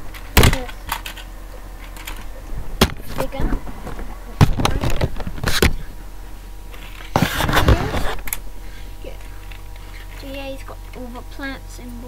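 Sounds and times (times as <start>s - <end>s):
plastic toy clicks and knocks: 0.4s - 1.3s.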